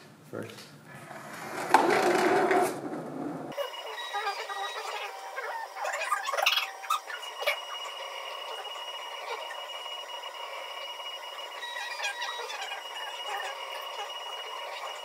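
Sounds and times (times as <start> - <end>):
faint steady high tones: 3.5 - 15.0.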